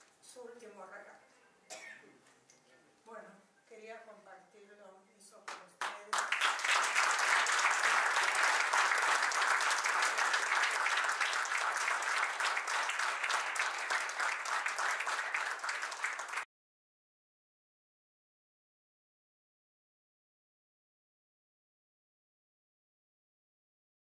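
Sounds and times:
audience applauding: 0:05.8 - 0:16.5.

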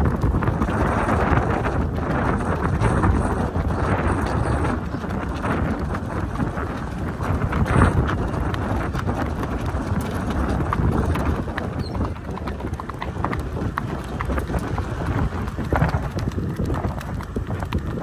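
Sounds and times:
horse hoofbeats cantering on dirt: 0:00.0 - 0:18.0
wind rumble on microphone: 0:00.0 - 0:18.0.

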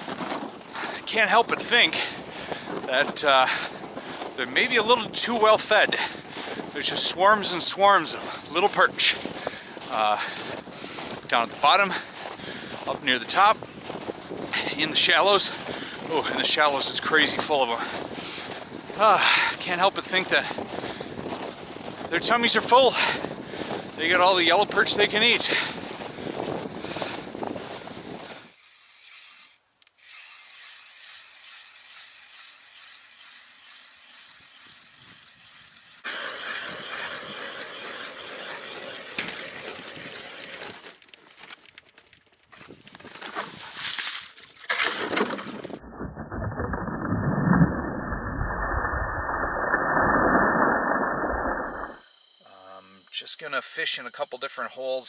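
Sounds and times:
ice auger rasping through ice: 0:00.0 - 0:41.2, 0:43.0 - 0:47.7
water surging up hole: 0:45.7 - 0:52.1.

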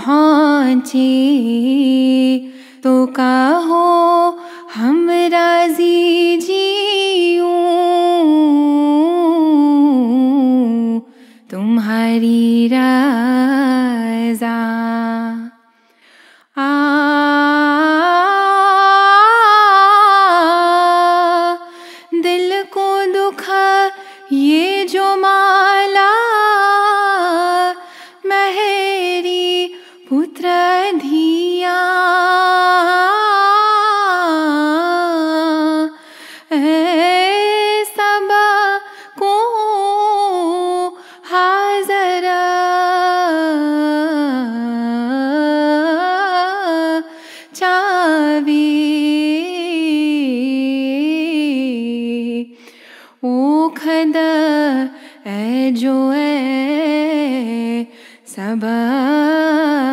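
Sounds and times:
woman singing a hymn unaccompanied: 0:00.0 - 0:15.5, 0:16.6 - 0:59.9
singer breathing: 0:02.5 - 0:02.9, 0:04.4 - 0:04.7, 0:11.1 - 0:11.5, 0:15.7 - 0:16.6, 0:21.6 - 0:22.2, 0:27.8 - 0:28.2, 0:36.0 - 0:36.5, 0:47.1 - 0:47.6, 0:52.5 - 0:53.2, 0:54.9 - 0:55.3, 0:57.9 - 0:58.3.

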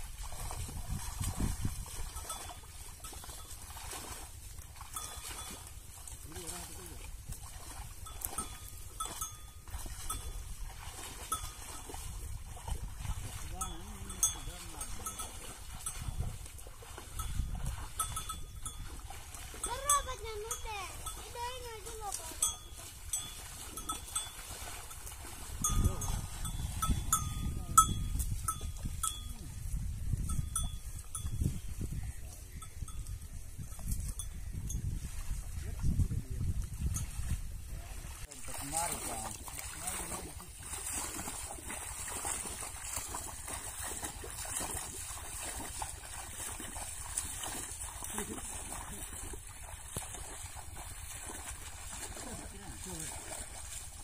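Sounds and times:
small metal bells clinking: 0:08.0 - 0:10.5, 0:13.6 - 0:16.2, 0:17.2 - 0:19.0, 0:19.6 - 0:25.0, 0:25.6 - 0:29.4.

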